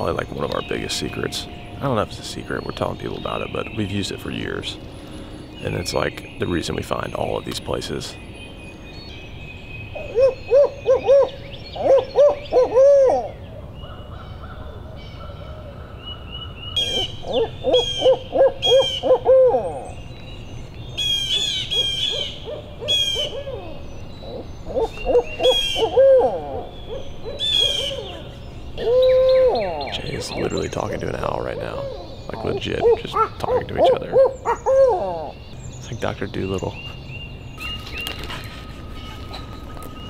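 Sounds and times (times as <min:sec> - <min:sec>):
songbird chirps: 0:00.0 - 0:40.0
owl hooting: 0:09.9 - 0:20.0, 0:21.0 - 0:35.5
man hooting owl call: 0:10.1 - 0:13.3, 0:16.8 - 0:19.9, 0:24.7 - 0:26.8, 0:27.4 - 0:30.6, 0:31.5 - 0:35.4.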